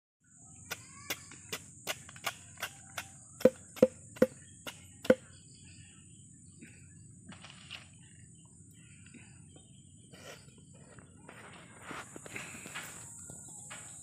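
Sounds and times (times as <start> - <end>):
knife chopping on wooden log: 0.7 - 5.2.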